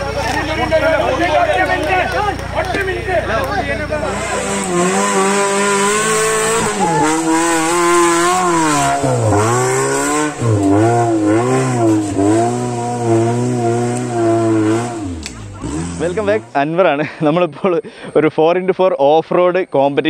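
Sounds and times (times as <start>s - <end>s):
jeep engine revving hard: 3.8s - 16.6s.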